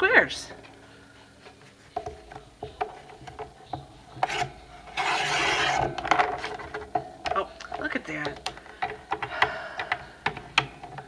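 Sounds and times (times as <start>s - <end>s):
paper trimmer blade rasping: 4.2s - 5.9s.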